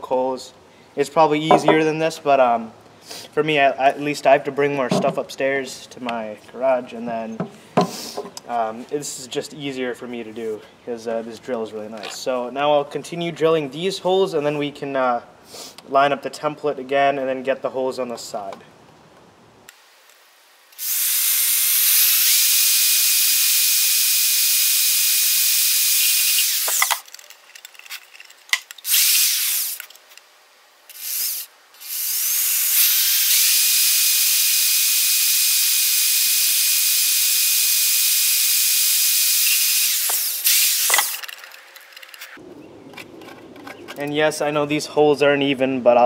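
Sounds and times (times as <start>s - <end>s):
electric drill whining: 20.8s - 27.1s, 28.8s - 29.9s, 30.9s - 42.2s.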